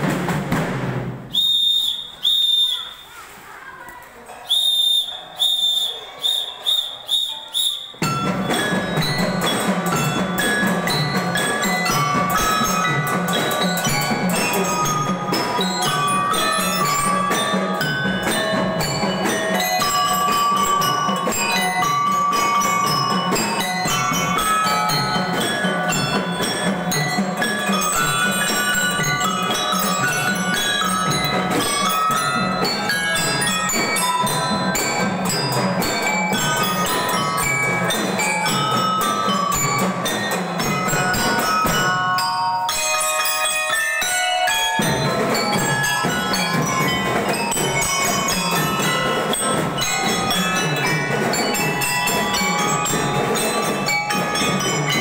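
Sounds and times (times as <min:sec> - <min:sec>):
band music with mallet melody: 0:00.0 - 0:01.4, 0:07.4 - 0:55.0
steady drumbeat: 0:00.0 - 0:01.6, 0:07.9 - 0:55.0
whistle blasts: 0:01.3 - 0:03.2, 0:04.4 - 0:08.0.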